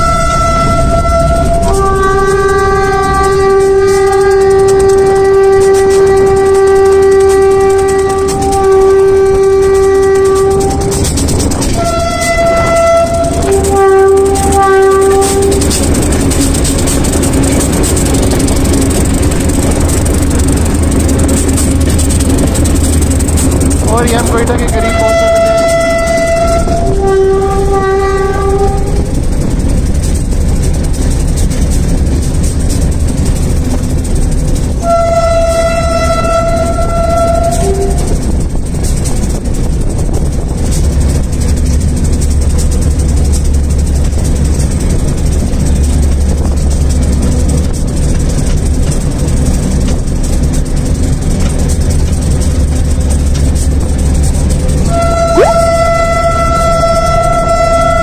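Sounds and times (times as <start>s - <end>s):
locomotive air horn: 0.0s - 16.7s, 23.9s - 29.2s, 34.8s - 38.3s, 54.8s - 58.0s
locomotive rumble: 0.0s - 58.0s.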